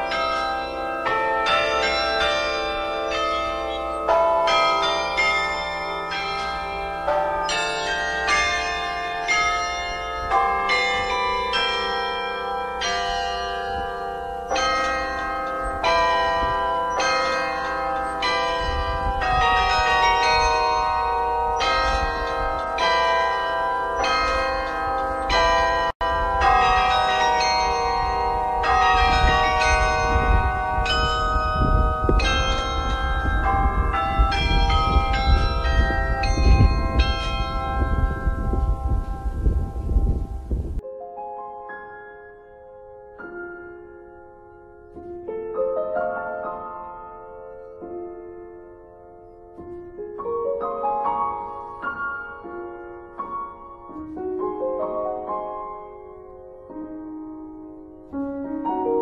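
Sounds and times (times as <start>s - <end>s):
carillon bells playing a tune: 0.0s - 42.6s.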